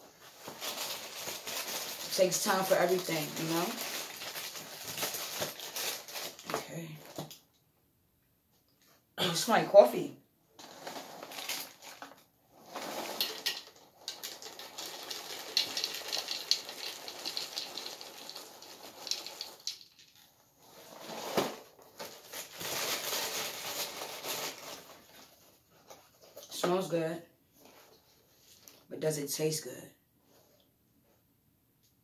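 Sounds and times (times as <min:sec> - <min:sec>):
cereal pouring into plastic bowl: 0:10.6 - 0:20.2.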